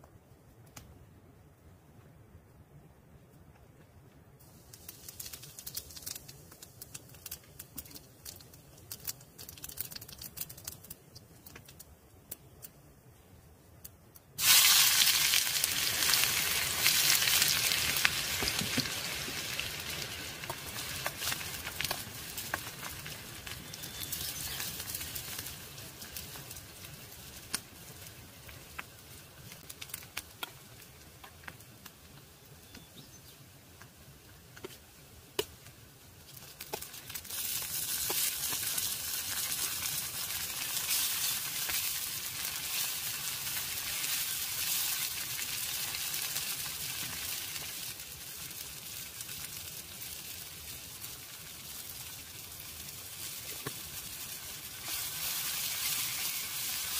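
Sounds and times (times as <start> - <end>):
crackling wood fire: 0.0 - 56.9
burning wood popping: 4.4 - 12.8, 13.8 - 56.9
food sizzling in a pan: 14.4 - 30.0, 36.3 - 56.9.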